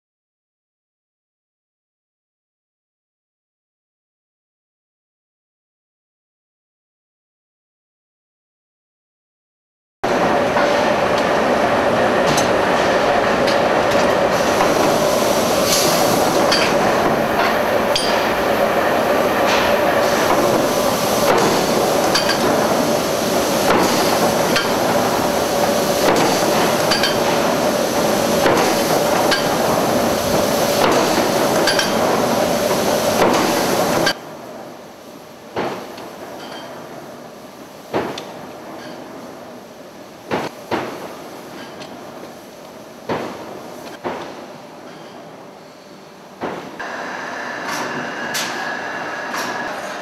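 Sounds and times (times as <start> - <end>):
machinery drone and hum: 10.0 - 34.2, 46.7 - 50.0
metallic strikes and clanks: 17.4 - 18.4.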